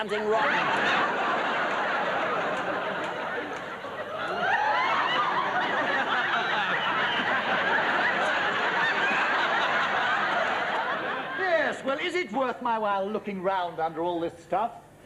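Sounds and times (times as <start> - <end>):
studio audience laughing: 0.0 - 12.0.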